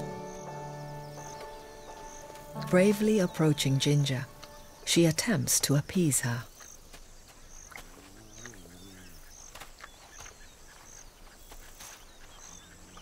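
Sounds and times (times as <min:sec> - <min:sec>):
insect chirping: 0:00.0 - 0:13.0
faint bird calls: 0:06.2 - 0:13.0.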